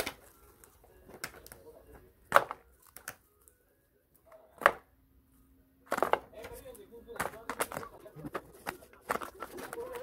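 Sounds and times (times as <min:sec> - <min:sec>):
candy wrappers crinkling: 0:07.6 - 0:10.0.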